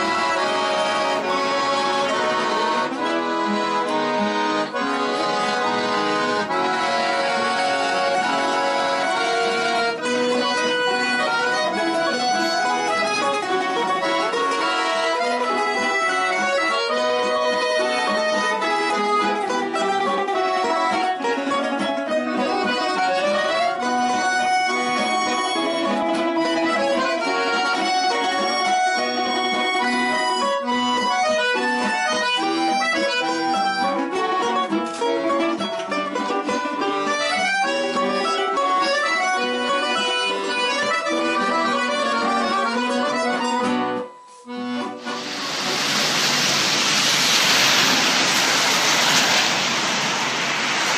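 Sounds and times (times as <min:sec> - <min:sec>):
accordion music: 0:00.0 - 0:50.9
car tyres on wet street: 0:45.0 - 0:50.9
rain hissing: 0:45.0 - 0:50.9.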